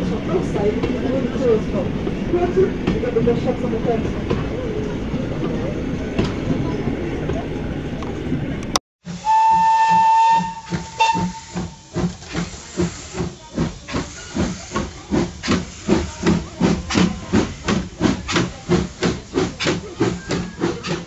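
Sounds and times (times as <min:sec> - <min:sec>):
steam locomotive chuffing: 0:09.0 - 0:21.0
steam locomotive whistle: 0:09.1 - 0:12.0.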